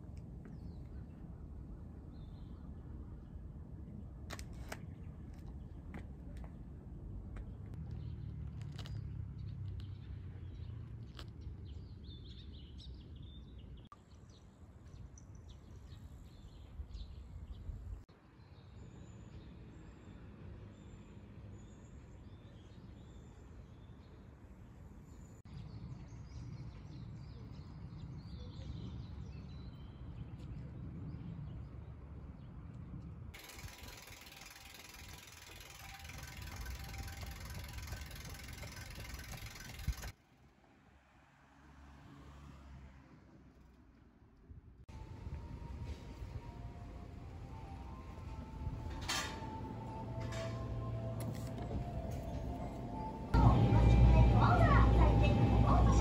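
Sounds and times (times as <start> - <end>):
freewheel ratchet ticking: 33.4 - 40.1
bicycle rolling with hiss: 33.4 - 40.2
low outdoor rumble: 44.9 - 56.0.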